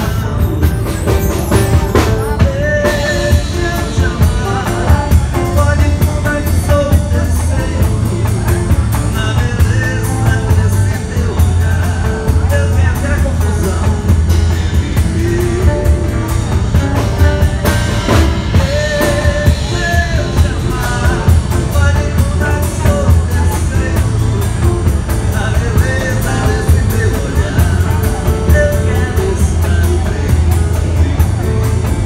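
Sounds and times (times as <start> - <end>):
drum beat: 0.0 - 32.0
guitar: 0.0 - 32.0
person singing: 0.0 - 32.0.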